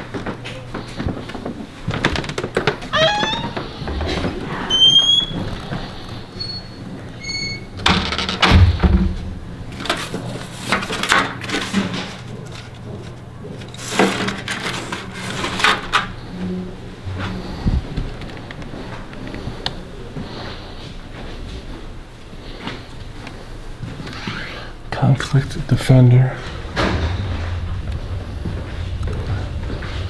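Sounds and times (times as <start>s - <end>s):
paper rustling: 9.8s - 16.0s.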